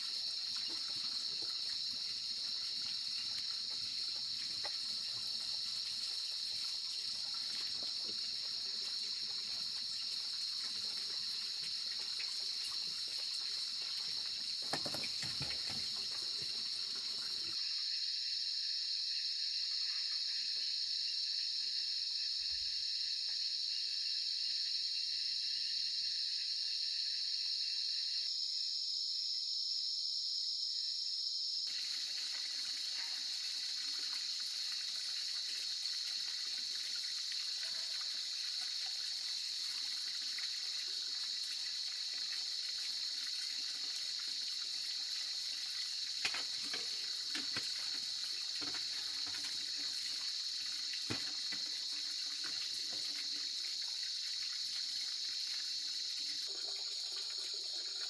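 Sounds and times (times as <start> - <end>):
night insects chirring: 0.0 - 58.0
wood fire hissing and popping: 45.9 - 53.8.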